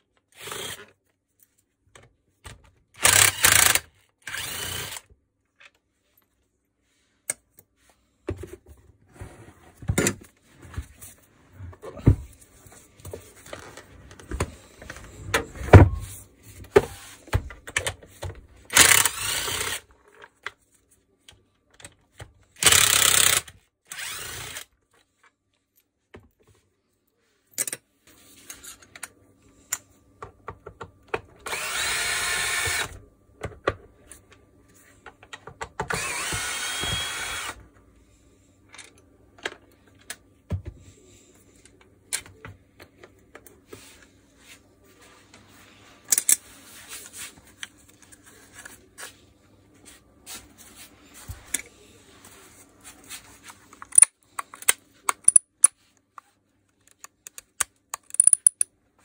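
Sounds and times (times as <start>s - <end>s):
cordless screwdriver whirring: 3.0s - 5.1s, 18.7s - 19.8s, 22.6s - 24.7s, 31.5s - 32.9s, 35.9s - 37.6s
clicks of handled parts: 46.1s - 46.4s, 53.7s - 55.8s, 56.7s - 58.7s.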